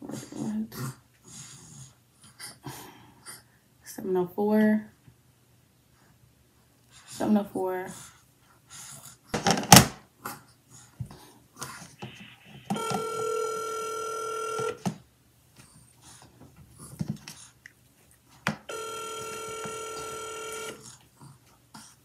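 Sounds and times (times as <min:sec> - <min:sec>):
phone ringback tone: 0:12.2 - 0:14.8, 0:18.7 - 0:20.8.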